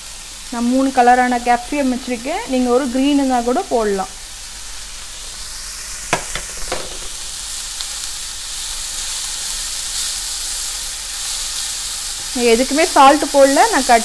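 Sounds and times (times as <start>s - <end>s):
vegetables sizzling in a frying pan: 0.0s - 14.0s
sharp knocks: 6.1s - 7.2s.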